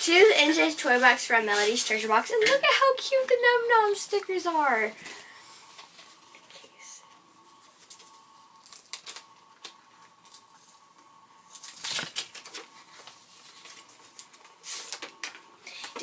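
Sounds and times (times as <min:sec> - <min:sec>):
paper crinkling: 0:07.6 - 0:10.8, 0:11.5 - 0:15.4
paper rustling and tearing: 0:11.5 - 0:15.2.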